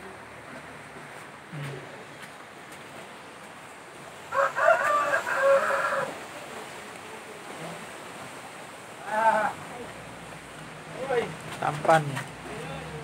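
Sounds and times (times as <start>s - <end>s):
rooster crowing: 4.3s - 6.2s.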